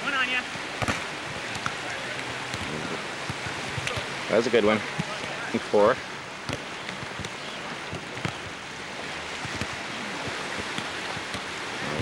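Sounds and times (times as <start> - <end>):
volleyball slaps: 0.8 - 4.1, 4.9 - 5.6, 6.4 - 8.6, 9.4 - 11.6.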